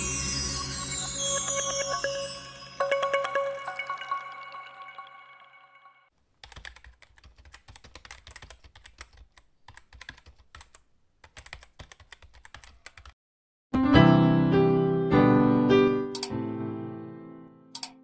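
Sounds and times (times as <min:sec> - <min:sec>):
keyboard typing clicks: 0:06.4 - 0:13.2, 0:16.1 - 0:16.4, 0:17.7 - 0:18.0.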